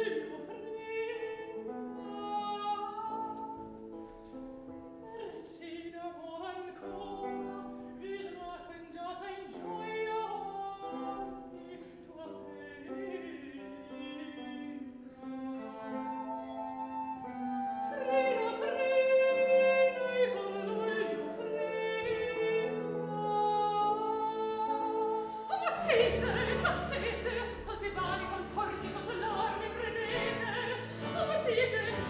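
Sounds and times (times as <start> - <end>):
woman singing opera: 0.0 - 32.0
string ensemble playing chords: 15.1 - 17.8, 25.8 - 32.0.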